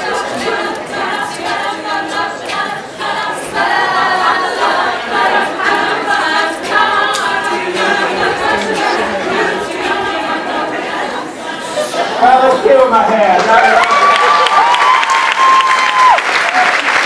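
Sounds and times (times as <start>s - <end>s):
a cappella group singing: 0.0s - 12.6s.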